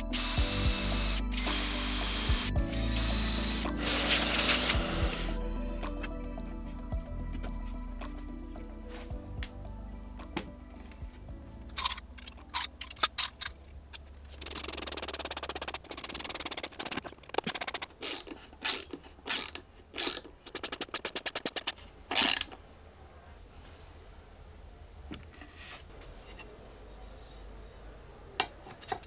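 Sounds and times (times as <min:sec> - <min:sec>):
cordless drill motor: 0:00.0 - 0:05.4
drill clutch clicking: 0:14.4 - 0:22.6.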